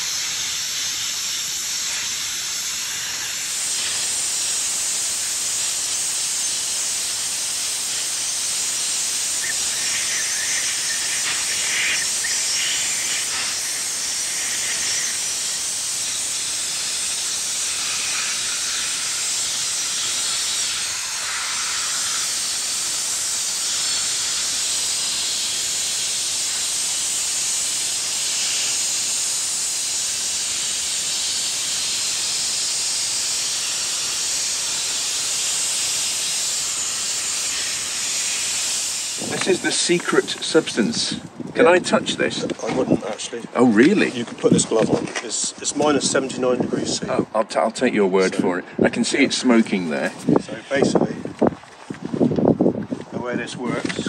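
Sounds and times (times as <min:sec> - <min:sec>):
dry ice blasting gun hissing: 0:00.0 - 0:42.3.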